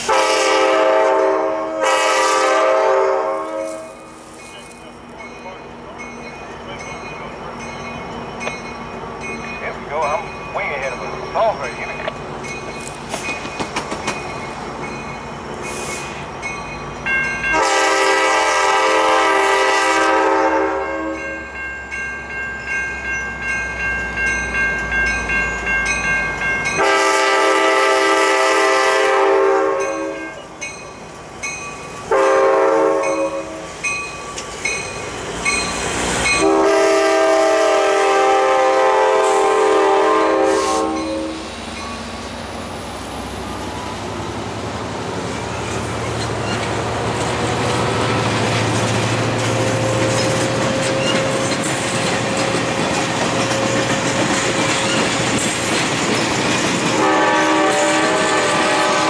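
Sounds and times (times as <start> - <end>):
locomotive air horn blasts: 0.0 - 4.2, 17.5 - 21.4, 26.8 - 30.4, 32.1 - 33.6, 36.4 - 41.5, 57.0 - 59.0
train rumble and rail clatter: 0.0 - 59.0.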